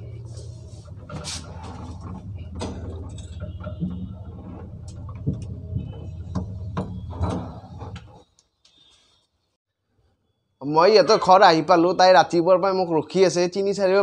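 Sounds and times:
lift humming: 0:00.0 - 0:08.2.

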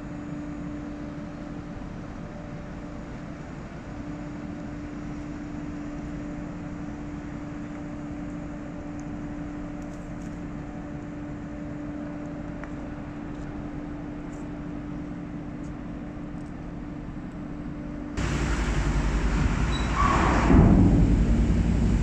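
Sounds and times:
ship engine humming: 0:10.5 - 0:22.0.

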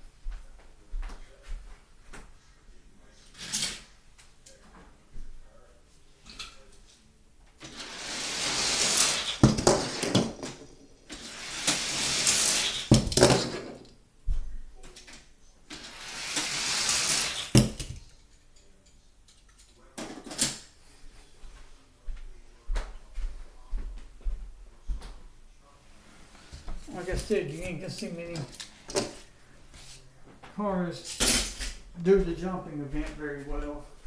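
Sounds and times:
toy cars rolling down plastic track: 0:07.6 - 0:13.8, 0:15.7 - 0:18.0
toy car clattering on landing: 0:07.6 - 0:13.9, 0:15.8 - 0:18.1.

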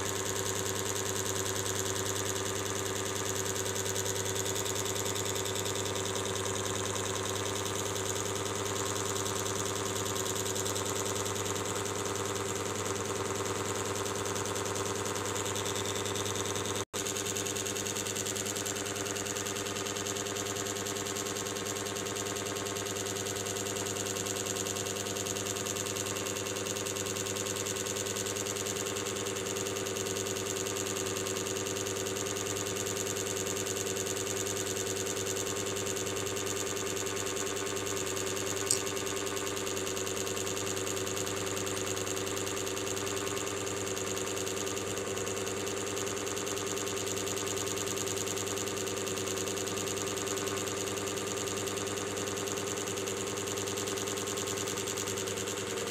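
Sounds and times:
sharp click: 0:38.6 - 0:39.0.

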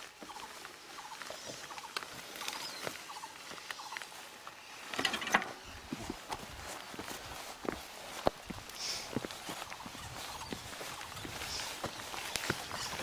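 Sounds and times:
trike wheels rattling on stones: 0:04.8 - 0:06.3.

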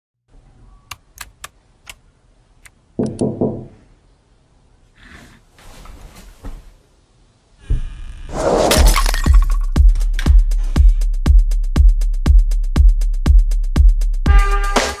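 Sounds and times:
keyboard and mouse clicks: 0:00.9 - 0:02.0
knocking thump: 0:07.7 - 0:08.0.

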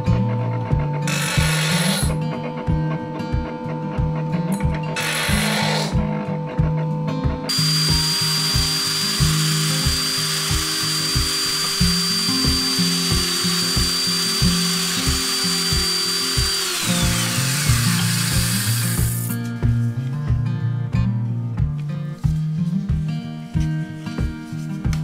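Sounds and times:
background music with steady beat: 0:00.0 - 0:25.0
drill press drilling metal: 0:01.1 - 0:02.1, 0:05.0 - 0:06.0, 0:07.5 - 0:19.4.

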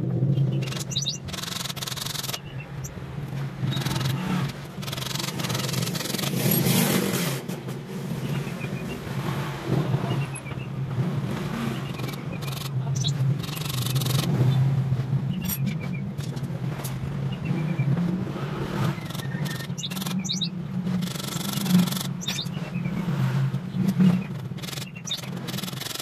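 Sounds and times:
low engine-like hum: 0:00.0 - 0:26.0
bird chirps: 0:00.3 - 0:03.0, 0:03.6 - 0:06.6, 0:08.2 - 0:09.1, 0:10.0 - 0:10.8, 0:11.6 - 0:14.6, 0:18.9 - 0:23.0, 0:24.0 - 0:26.0.

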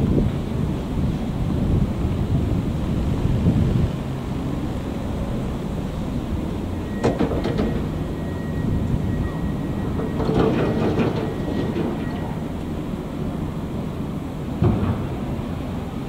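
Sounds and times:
locomotive engine rumble: 0:00.0 - 0:16.0
train wheels clacking: 0:07.0 - 0:08.3, 0:09.2 - 0:12.7.

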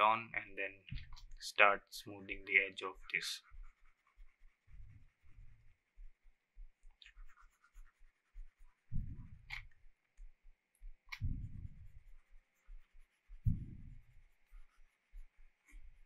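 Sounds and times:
scratchy pen strokes: 0:00.9 - 0:16.0
soft low thumps: 0:04.7 - 0:07.0, 0:08.9 - 0:12.2, 0:13.4 - 0:14.3
sharp mouse clicks: 0:11.1 - 0:11.4.

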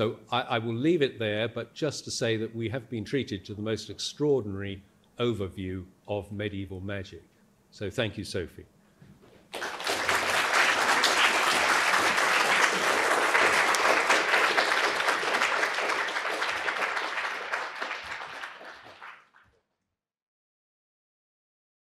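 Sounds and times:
audience applauding: 0:09.5 - 0:19.5.

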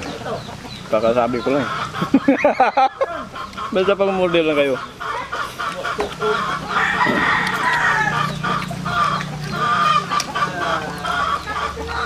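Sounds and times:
chickens clucking: 0:00.0 - 0:12.0
rooster crowing: 0:06.3 - 0:11.4.

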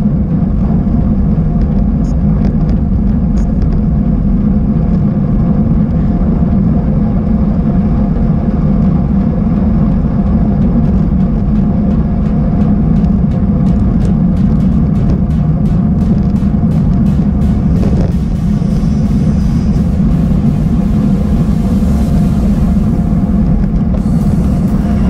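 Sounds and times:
wind rumble: 0:00.0 - 0:25.0.

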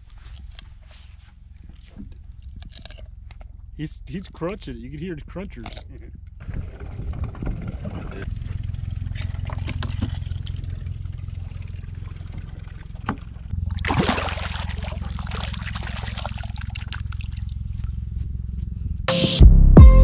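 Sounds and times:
steady low hum: 0:00.0 - 0:20.0
water splashing and dripping: 0:09.0 - 0:17.9.

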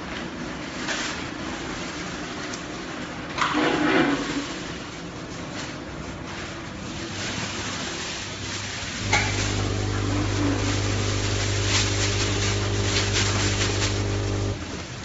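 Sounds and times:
quiet machinery rumble: 0:00.0 - 0:15.0
low electric hum: 0:08.7 - 0:15.0.

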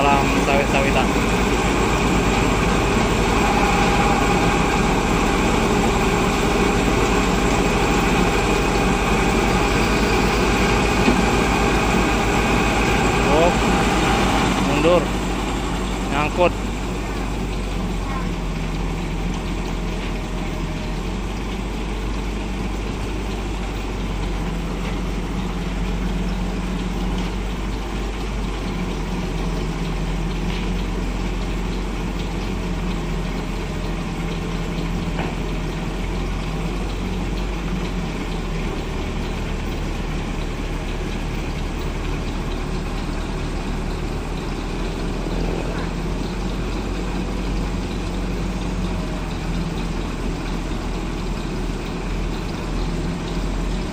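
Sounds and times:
heavy vehicle engine idling: 0:00.0 - 0:53.9.

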